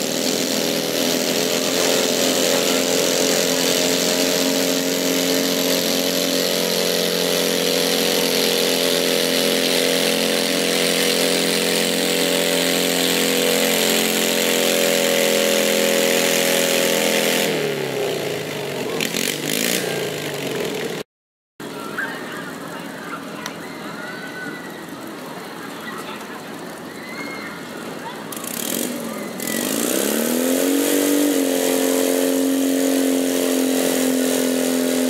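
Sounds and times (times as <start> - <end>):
tractor engine running at high revs: 0.0 - 35.0.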